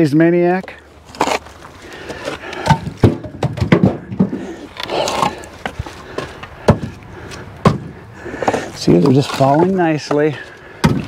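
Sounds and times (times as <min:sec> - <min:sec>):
firewood knocking into truck bed: 0:02.6 - 0:04.4, 0:06.7 - 0:06.9, 0:07.6 - 0:07.9, 0:10.8 - 0:11.0.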